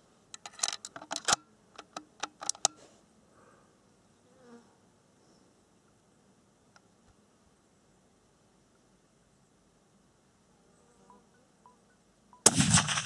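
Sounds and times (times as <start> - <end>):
sharp clicks and knocks: 0.4 - 2.8.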